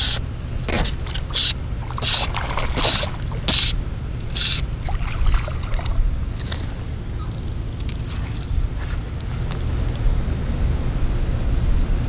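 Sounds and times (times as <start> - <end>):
fly line swishing: 0.0 - 6.8
low wind rumble on microphone: 0.0 - 12.0.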